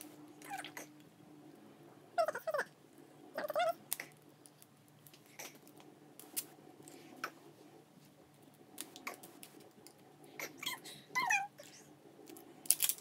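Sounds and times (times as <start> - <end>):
plastic wrapping crinkling: 12.3 - 13.0.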